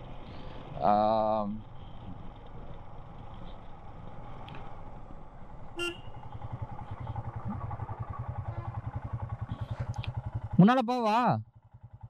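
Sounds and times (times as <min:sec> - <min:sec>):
motorcycle engine running: 0:00.0 - 0:12.0
short horn toot: 0:05.8 - 0:06.2.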